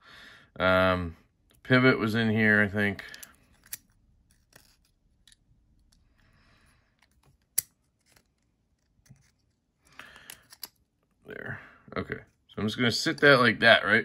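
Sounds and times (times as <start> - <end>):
metal knife parts clicking: 3.1 - 6.0.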